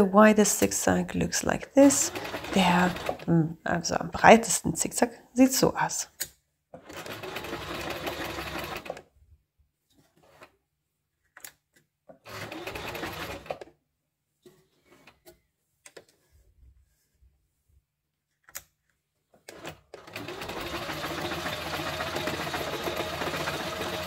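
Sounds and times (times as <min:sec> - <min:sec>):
sewing machine running: 0:01.8 - 0:03.3, 0:06.8 - 0:09.0, 0:12.3 - 0:13.6, 0:19.5 - 0:24.0.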